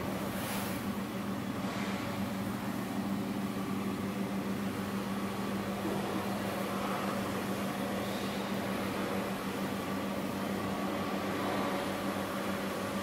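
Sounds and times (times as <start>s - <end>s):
diesel generator humming: 0.0s - 13.0s.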